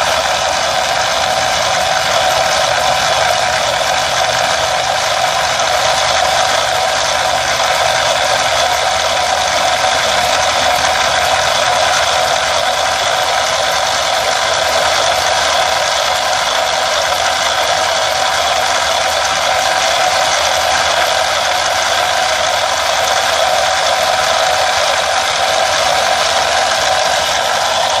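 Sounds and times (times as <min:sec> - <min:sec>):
toy excavator motors grinding: 0:00.0 - 0:28.0.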